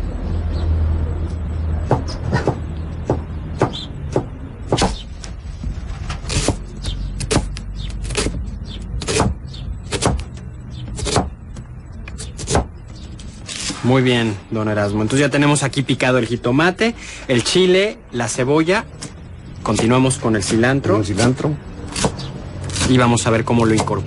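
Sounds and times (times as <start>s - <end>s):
knife chopping on wooden board: 1.9s - 5.0s, 9.0s - 10.3s, 10.9s - 11.3s, 12.1s - 12.7s, 23.6s - 24.0s.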